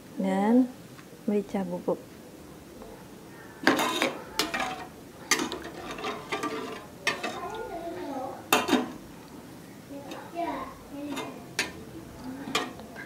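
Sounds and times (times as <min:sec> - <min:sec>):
metal spatula scraping frying pan: 0:03.6 - 0:07.6, 0:08.5 - 0:09.0, 0:11.0 - 0:13.0.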